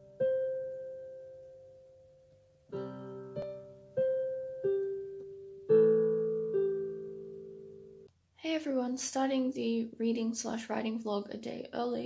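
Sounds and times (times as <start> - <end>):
slow gentle piano music: 0.0 - 8.1.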